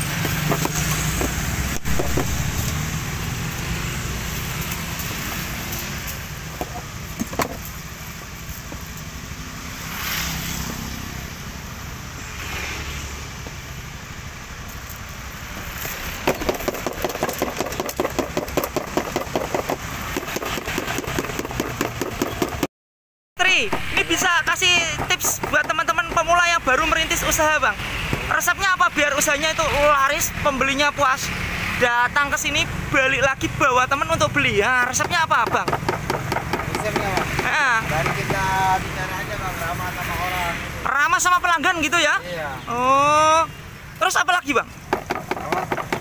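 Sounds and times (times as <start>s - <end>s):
street traffic: 0.0s - 22.7s, 23.4s - 46.0s.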